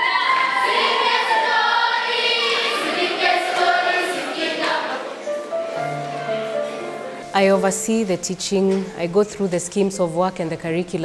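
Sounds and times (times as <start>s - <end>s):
children's choir singing: 0.0s - 7.2s.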